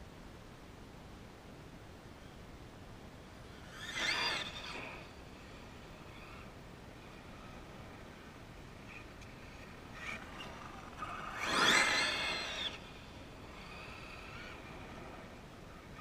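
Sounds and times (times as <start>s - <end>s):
electric motor whine: 3.5s - 15.4s.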